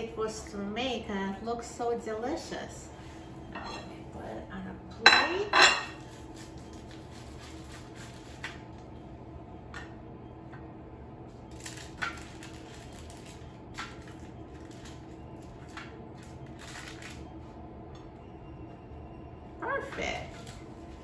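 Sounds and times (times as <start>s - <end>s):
faint steady hum: 0.0s - 21.0s.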